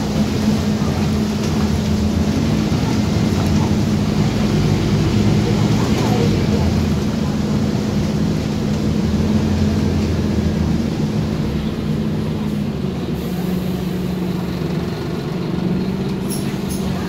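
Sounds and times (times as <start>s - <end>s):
bus diesel engine running: 0.0s - 17.0s
road noise: 0.0s - 17.0s.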